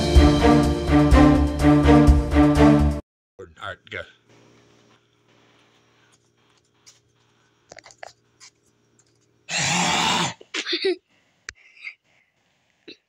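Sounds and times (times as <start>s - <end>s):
faint scuffs and clicks: 4.3s - 9.4s
man retching and gagging: 9.5s - 11.0s.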